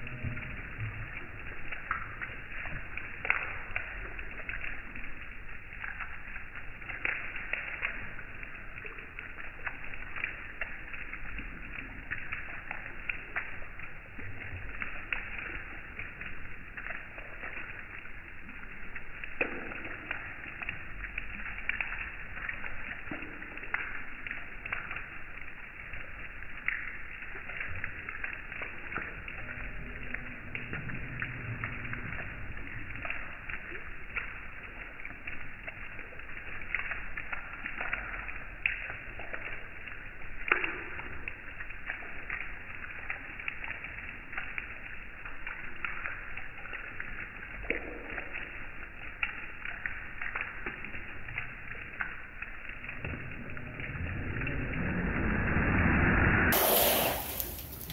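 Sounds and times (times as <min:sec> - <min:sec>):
low rumble: 0:00.0 - 0:02.8, 0:29.1 - 0:33.1, 0:52.6 - 0:57.9
light rain pattering: 0:00.0 - 0:57.9
raindrops ticking close by: 0:00.0 - 0:57.9.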